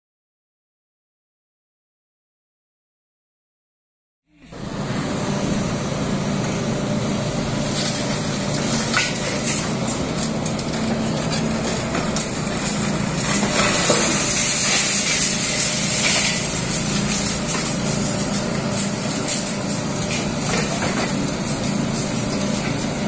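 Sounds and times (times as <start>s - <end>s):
excavator diesel engine running: 4.4s - 23.0s
concrete being crushed: 7.7s - 23.0s
sharp cracks of breaking concrete: 8.6s - 22.6s.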